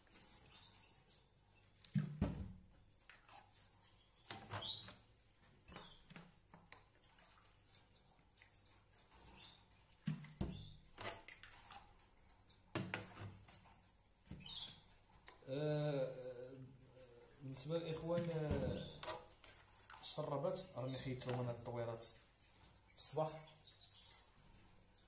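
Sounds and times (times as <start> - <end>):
canary chirps: 0.1 - 1.7, 9.0 - 9.8, 14.4 - 15.0, 22.6 - 24.5.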